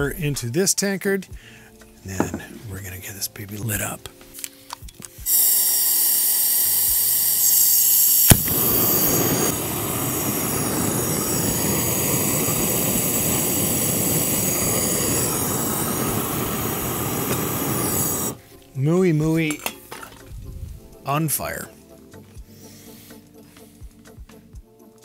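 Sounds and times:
gas torch hissing: 5.2 - 18.4
torch ignition click: 5.3 - 18.4
torch flame rushing: 7.5 - 18.4.

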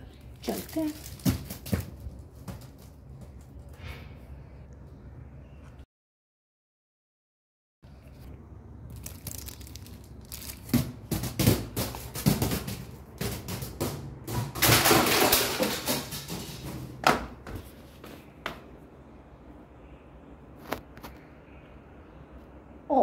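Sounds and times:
foil crinkling: 0.1 - 1.8, 8.9 - 11.2
object knocking down stairs: 10.6 - 17.7.

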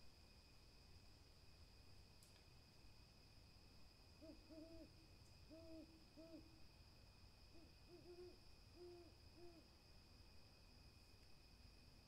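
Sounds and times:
owl hooting: 4.2 - 6.5, 7.5 - 9.7.

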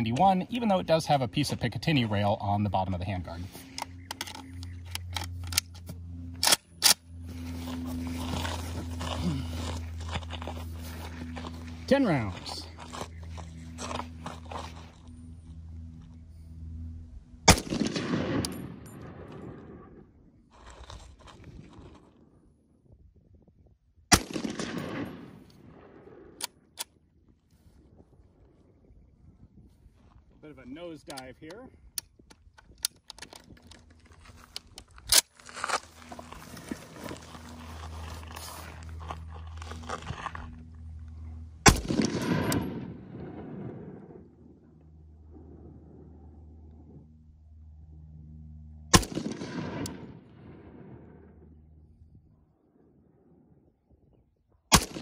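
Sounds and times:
rifle shot echoing: 17.4 - 19.9, 24.1 - 26.4, 41.6 - 44.4, 48.9 - 51.3, 54.7 - 55.0.

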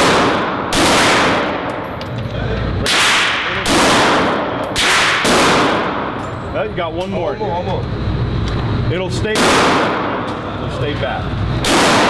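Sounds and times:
pistol shots echoing indoors: 0.0 - 2.0, 2.8 - 6.3, 9.3 - 10.4, 11.6 - 12.0.

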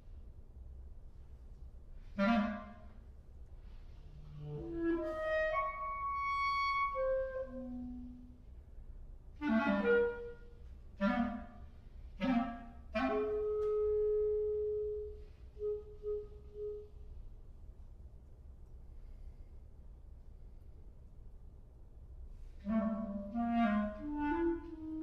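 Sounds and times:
solo clarinet playing: 2.0 - 8.4, 9.4 - 17.2, 22.6 - 25.0.

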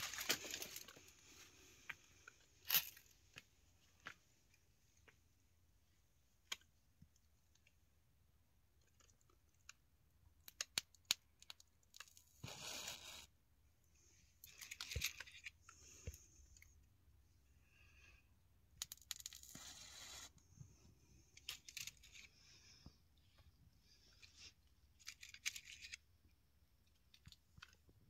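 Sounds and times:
leaves and twigs rustling: 0.0 - 1.5.

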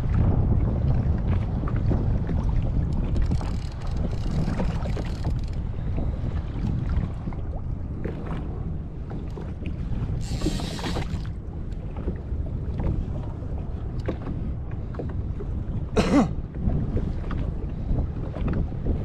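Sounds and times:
water slapping against hull: 0.0 - 19.0
wind rumbling on microphone: 0.0 - 19.0.

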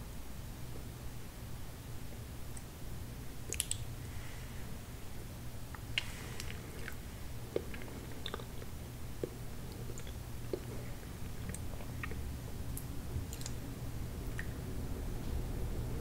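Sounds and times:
mouth clicks and smacks: 3.4 - 3.9, 5.8 - 10.8, 11.4 - 12.2, 12.8 - 13.6
close-miked chewing: 5.7 - 13.6.

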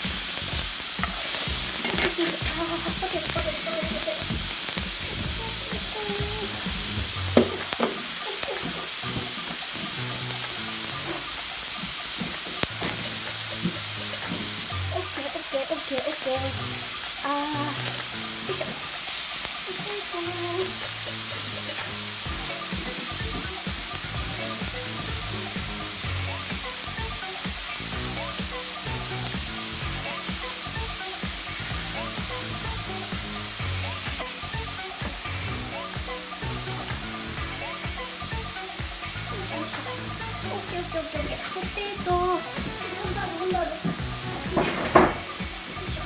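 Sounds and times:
food sizzling in pans: 0.0 - 46.0.

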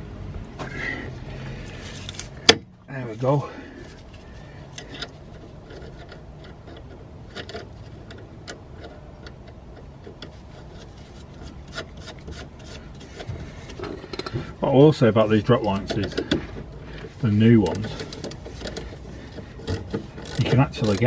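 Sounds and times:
metal nut clicking and rubbing: 4.0 - 21.0.

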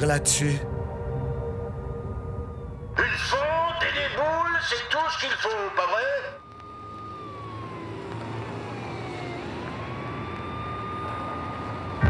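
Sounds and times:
synthesizer tone sliding in pitch: 0.0 - 3.6
low hum: 0.0 - 5.4.

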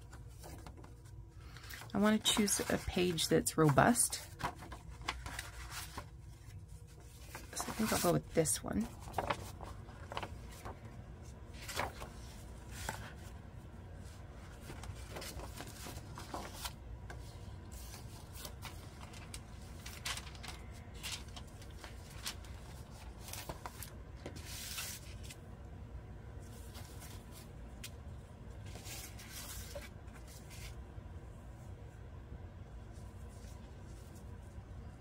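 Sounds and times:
paper rustling and tapping: 0.0 - 6.1, 8.8 - 10.9
low steady hum: 0.0 - 35.0.

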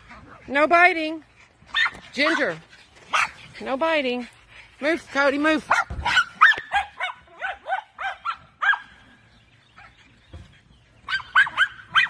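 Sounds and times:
small dogs barking: 1.6 - 3.6, 5.6 - 10.2, 11.0 - 12.0.

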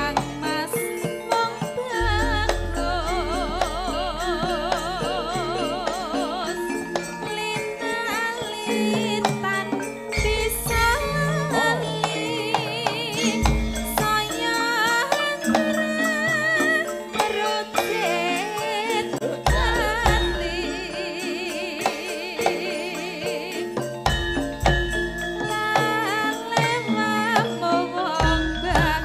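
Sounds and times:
hand drumming: 0.0 - 29.0
metallophone tones: 0.0 - 29.0
woman singing with vibrato: 0.0 - 29.0
deep booming strokes: 2.0 - 6.7.

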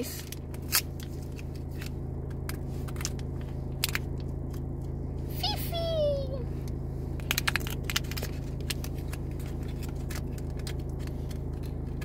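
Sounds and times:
car low hum: 0.0 - 12.0
foil packet crackling: 7.2 - 12.0.

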